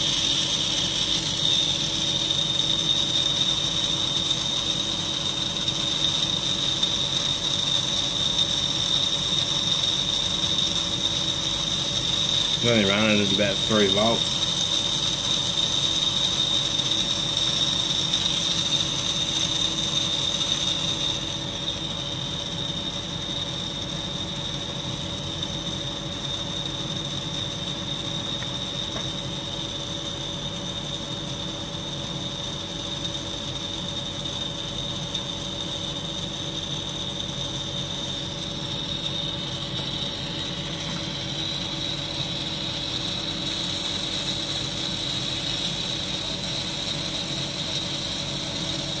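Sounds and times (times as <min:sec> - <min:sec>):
vacuum motor hum with whine: 0:00.0 - 0:49.0.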